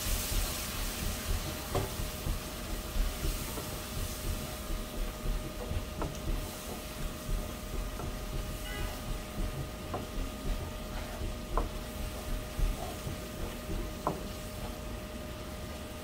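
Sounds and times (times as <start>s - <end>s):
light sizzle: 0.0s - 16.0s
wooden spatula scraping pan: 8.0s - 14.8s.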